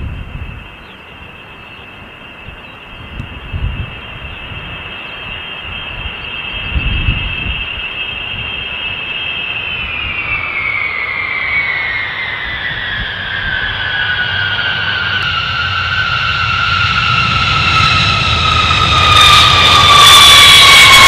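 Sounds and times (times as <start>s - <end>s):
jet engines whining: 0.0s - 21.0s
low rumble: 5.7s - 21.0s.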